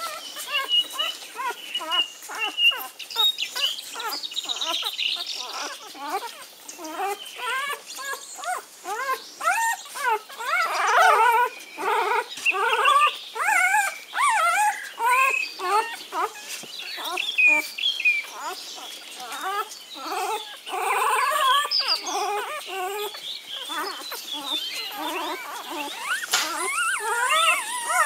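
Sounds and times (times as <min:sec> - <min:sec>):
puppies squealing and whining: 0:00.0 - 0:28.0.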